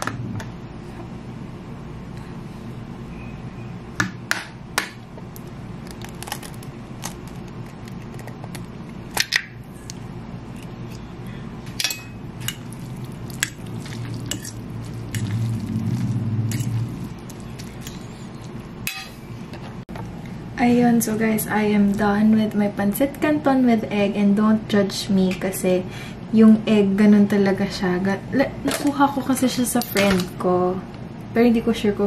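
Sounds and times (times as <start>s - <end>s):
low hum: 5.3s - 22.3s.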